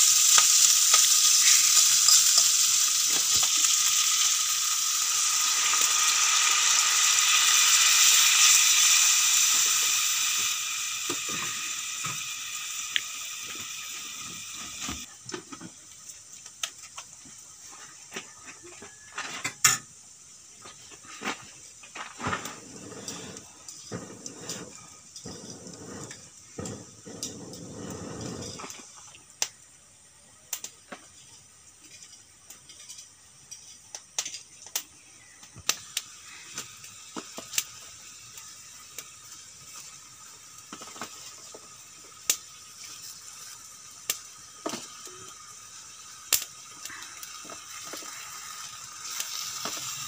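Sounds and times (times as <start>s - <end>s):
wood fire crackling: 0.0s - 17.6s, 30.4s - 50.0s
faint hiss: 0.0s - 50.0s.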